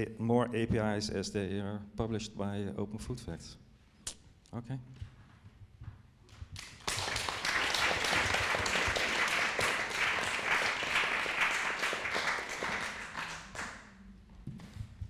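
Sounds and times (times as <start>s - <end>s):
audience applauding: 6.6s - 14.0s.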